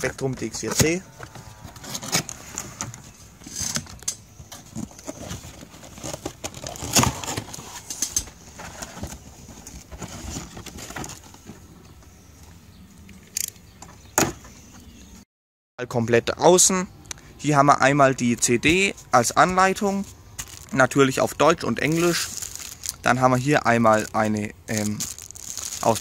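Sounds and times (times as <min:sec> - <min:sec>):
cardboard and plastic rustling: 0:00.0 - 0:11.9, 0:18.6 - 0:26.0.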